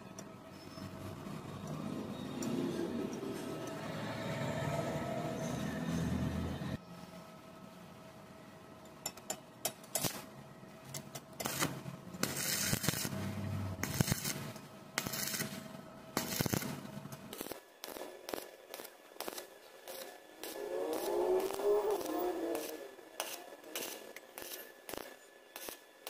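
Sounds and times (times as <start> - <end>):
welding arc crackling: 9.9 - 10.3, 11.0 - 26.0.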